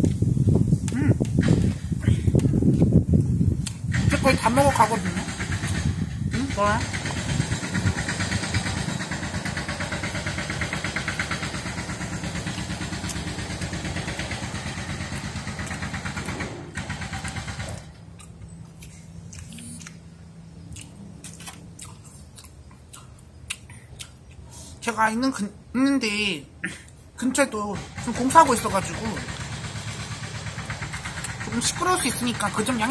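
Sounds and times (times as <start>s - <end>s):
loud engine running: 3.9s - 18.4s, 27.8s - 32.9s.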